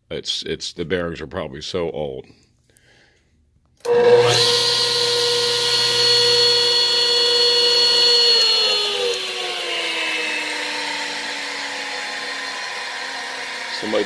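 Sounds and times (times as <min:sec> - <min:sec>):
saw motor whining and spinning down: 0:03.8 - 0:14.0.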